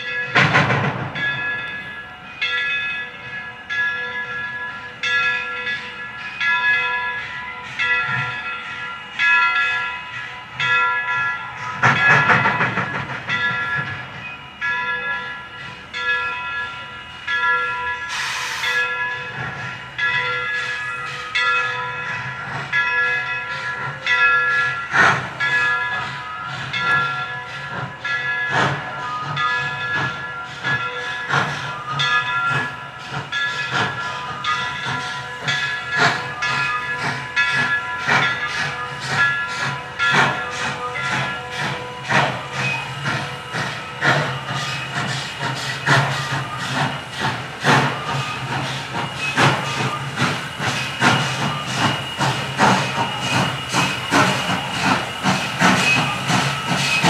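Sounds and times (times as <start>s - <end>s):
locomotive bell ringing: 0.0s - 57.0s
steam train: 0.0s - 57.0s
steam hiss: 11.3s - 57.0s
train whistle blasts: 18.0s - 18.9s.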